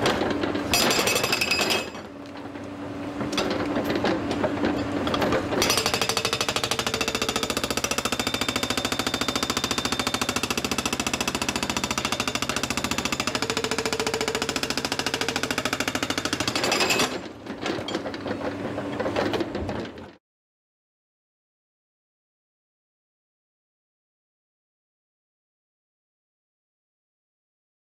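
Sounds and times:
hydraulic breaker hammering rock: 0.0s - 2.2s, 3.3s - 18.0s.

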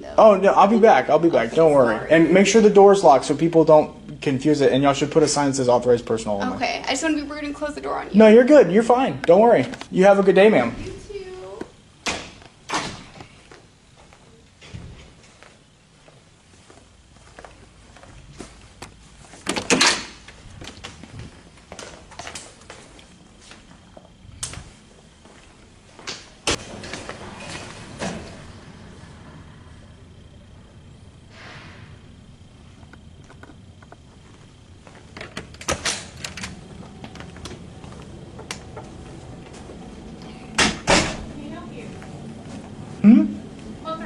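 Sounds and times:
footsteps: 9.5s - 27.9s, 32.7s - 35.3s, 36.5s - 40.5s, 41.2s - 43.8s
door shutting with a clack: 40.6s - 41.3s.

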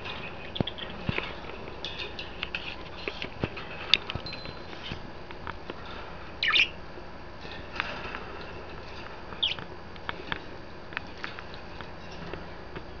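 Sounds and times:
budgerigars chirping and clicking: 0.0s - 1.3s, 6.4s - 6.8s, 8.9s - 10.3s
scratchy bird call: 6.4s - 6.8s, 9.4s - 9.6s.

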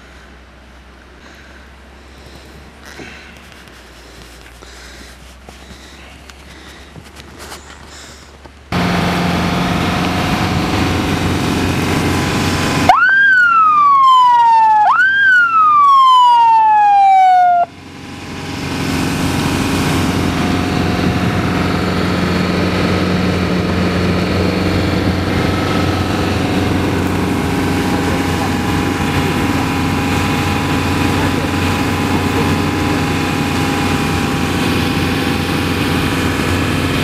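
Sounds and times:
tracked vehicle engine droning: 0.0s - 37.0s
siren wailing: 12.7s - 17.8s.

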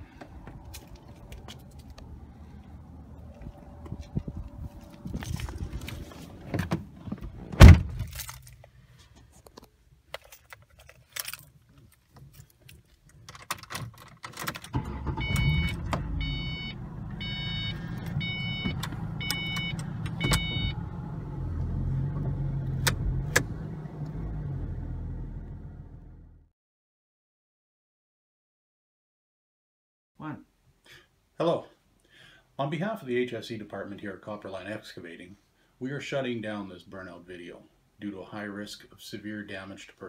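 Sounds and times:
car door slamming: 6.4s - 8.1s
keys jingling: 10.1s - 14.7s
car engine starting and idling: 13.4s - 26.5s.

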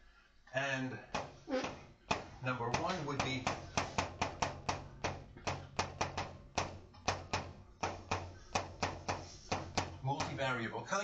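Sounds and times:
chalk clicking on blackboard: 2.1s - 10.4s.

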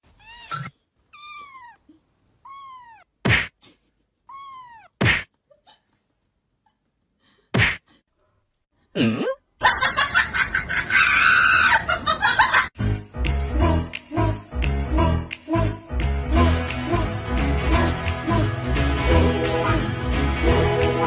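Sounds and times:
cat meow: 0.1s - 1.8s, 2.4s - 3.1s, 4.3s - 5.0s
sharp whack: 3.2s - 3.6s, 5.0s - 5.3s, 7.6s - 7.9s
added laughter: 9.6s - 12.7s
background music: 12.8s - 21.0s.

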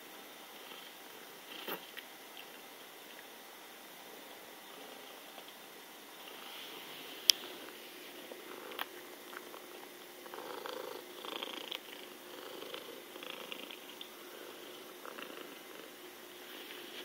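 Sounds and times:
cat purring: 0.5s - 1.9s, 7.5s - 17.0s.

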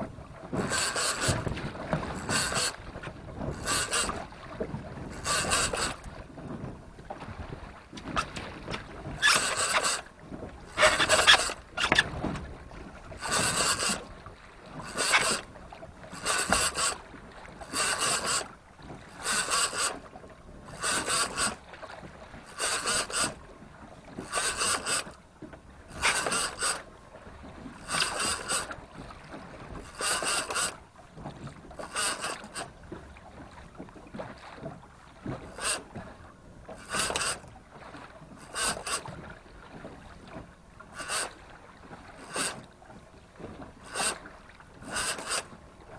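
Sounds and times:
wind and sea noise: 0.0s - 45.9s
fishing reel whirring: 0.6s - 1.4s, 2.2s - 2.8s, 3.6s - 4.2s, 5.2s - 6.0s, 9.2s - 10.0s, 10.8s - 12.1s, 13.2s - 14.0s, 14.9s - 15.4s, 16.1s - 17.0s, 17.7s - 18.5s, 19.2s - 20.0s, 20.7s - 21.6s, 22.5s - 23.4s, 24.3s - 25.1s, 25.9s - 26.8s, 27.8s - 28.7s, 29.9s - 30.7s, 31.8s - 32.6s, 36.8s - 37.4s, 38.5s - 39.1s, 44.9s - 45.5s.

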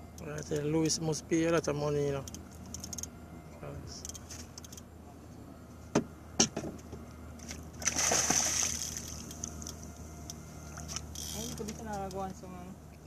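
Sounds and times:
fish splashing water: 7.8s - 9.5s.

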